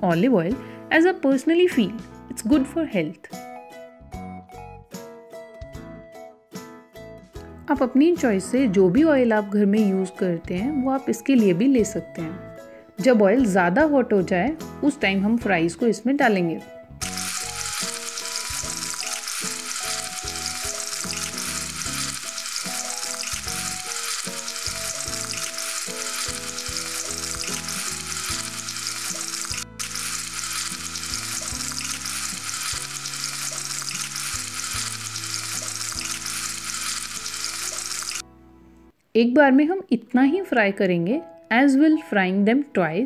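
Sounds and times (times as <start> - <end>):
potato fries sizzling in oil: 17.0 - 38.2.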